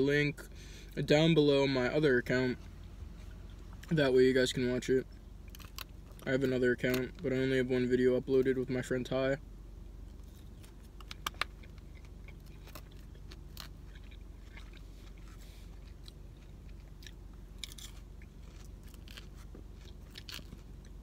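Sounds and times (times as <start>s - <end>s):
steady low hum: 0.0s - 21.0s
salad crunching while chewing: 10.1s - 21.0s.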